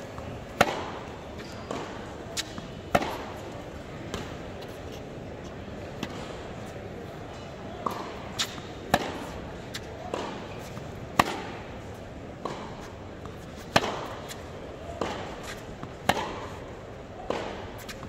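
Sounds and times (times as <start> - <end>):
ball bouncing on hard court: 0.1 - 3.4, 7.8 - 16.6
racquet hitting tennis ball: 0.1 - 18.0.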